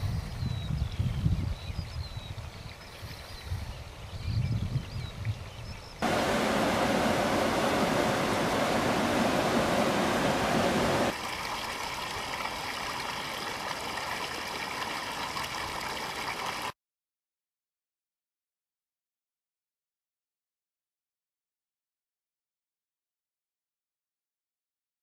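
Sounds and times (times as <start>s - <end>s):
river rapids rushing over boulders: 6.0s - 11.2s
outdoor ambience: 6.0s - 16.7s.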